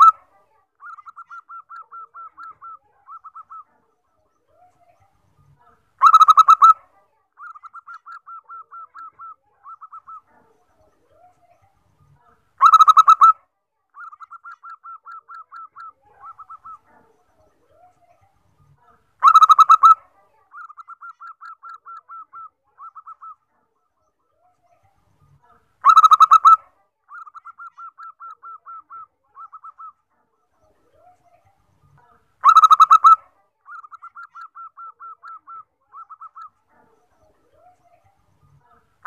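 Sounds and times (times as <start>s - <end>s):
dove cooing song: 0.8s - 3.8s, 7.4s - 10.3s, 12.6s - 13.4s, 14.0s - 17.0s, 25.8s - 29.9s, 32.4s - 36.5s.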